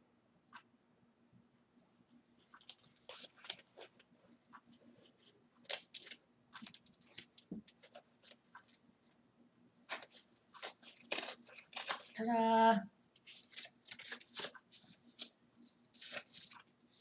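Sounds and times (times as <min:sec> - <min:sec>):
paper label crinkling and tearing: 0:02.4 - 0:04.0, 0:05.6 - 0:08.8, 0:09.9 - 0:12.2, 0:13.2 - 0:17.0.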